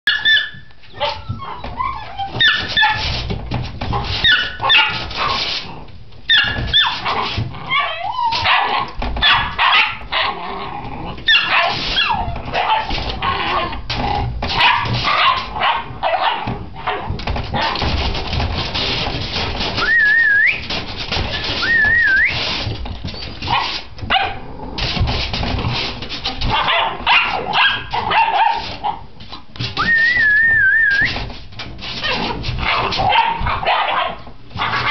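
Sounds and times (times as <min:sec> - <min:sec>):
puppy whining: 0:00.1 - 0:03.0, 0:06.3 - 0:09.4, 0:10.1 - 0:13.8, 0:21.3 - 0:22.4
puppies yipping and barking: 0:00.1 - 0:03.2, 0:04.2 - 0:05.6, 0:06.3 - 0:10.4, 0:11.3 - 0:13.7, 0:19.8 - 0:24.3.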